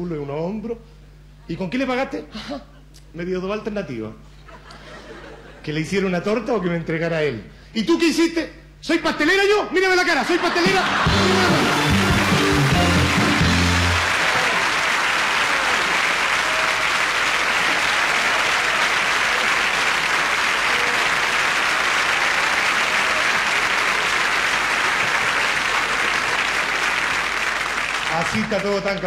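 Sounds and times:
audience applauding: 10.5 - 29.0.

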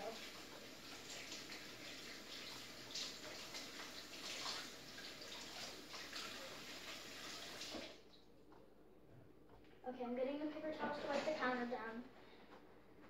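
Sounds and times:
water running from a tap: 0.0 - 8.0
uneven water splashing: 1.1 - 8.0.

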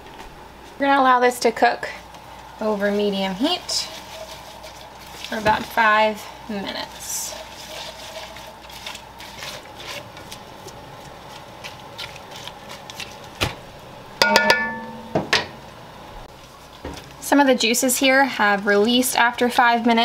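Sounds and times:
wooden spoon stirring in pot: 2.0 - 13.4, 16.3 - 20.0.

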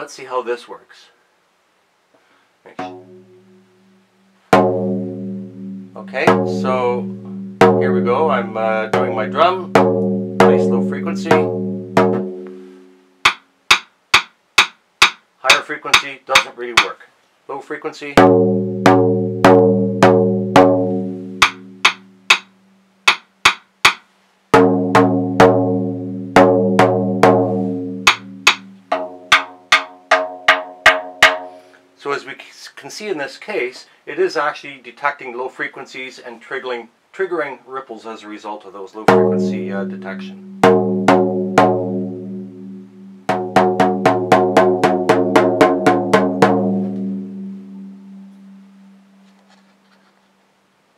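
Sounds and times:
drum being struck: 2.7 - 3.3, 4.5 - 12.6, 13.2 - 17.0, 18.2 - 31.6, 39.1 - 48.6.

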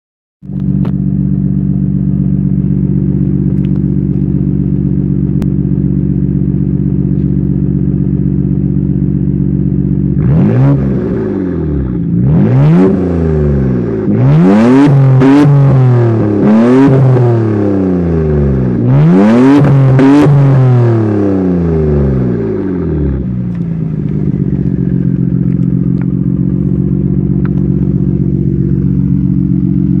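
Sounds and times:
car exhaust idling: 0.4 - 19.1, 19.7 - 30.0
engine revving throttle blips: 9.8 - 30.0.

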